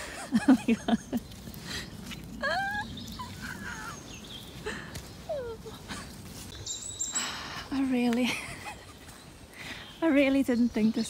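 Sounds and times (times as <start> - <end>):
faint rustle and clicks: 0.2 - 11.0
woman squealing and whimpering: 2.4 - 4.0, 5.3 - 6.0.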